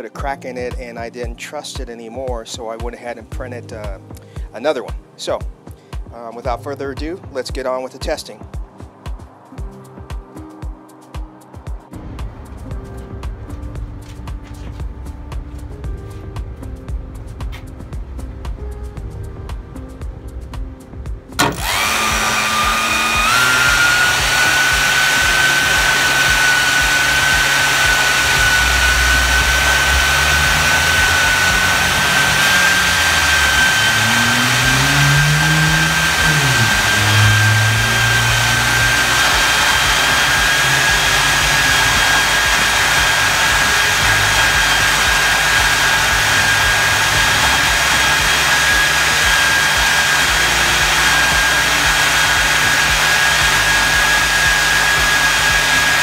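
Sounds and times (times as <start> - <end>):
ducted fan rushing: 12.0 - 56.0
high fan whistle: 21.4 - 56.0.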